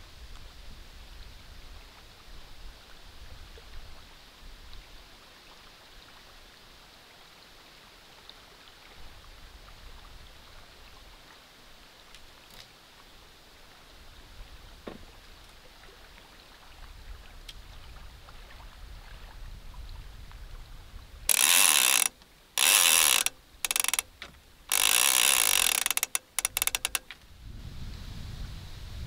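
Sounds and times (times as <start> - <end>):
fishing reel drag ratcheting: 21.3 - 27.2.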